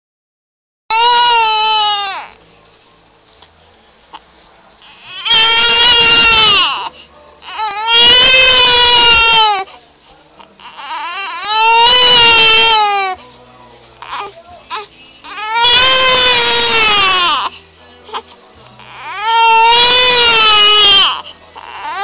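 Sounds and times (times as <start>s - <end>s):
infant crying: 0.9s - 2.4s, 4.8s - 9.7s, 10.4s - 13.2s, 14.0s - 18.2s, 18.8s - 22.0s.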